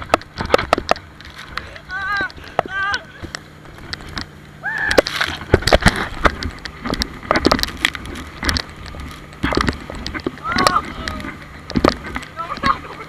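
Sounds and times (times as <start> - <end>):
low steady hum: 0.0 - 13.0
short cry: 4.6 - 5.4.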